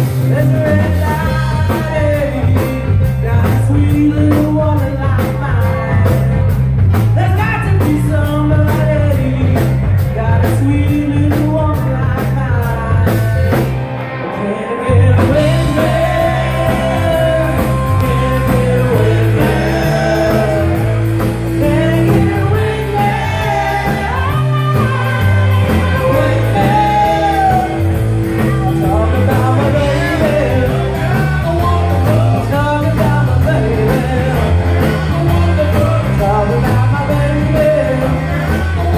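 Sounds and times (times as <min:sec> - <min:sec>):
live rock band playing: 0:00.0 - 0:38.9
woman singing: 0:21.6 - 0:27.8.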